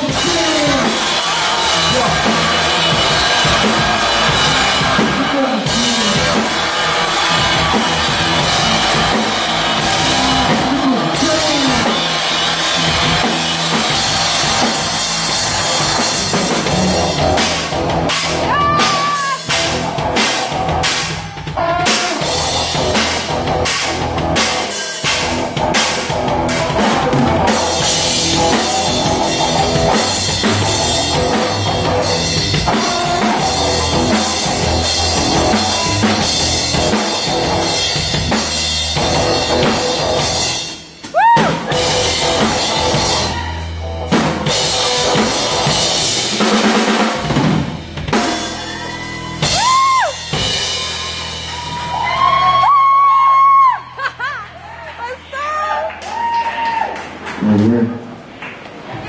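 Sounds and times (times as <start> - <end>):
band playing drum and bass: 0.0 - 54.0.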